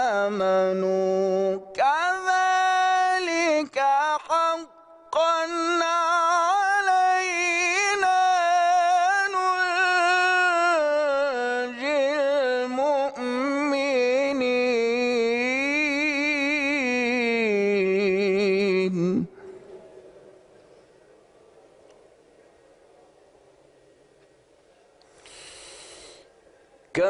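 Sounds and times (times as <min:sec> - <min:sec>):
man chanting melodically: 0:00.0 - 0:19.9.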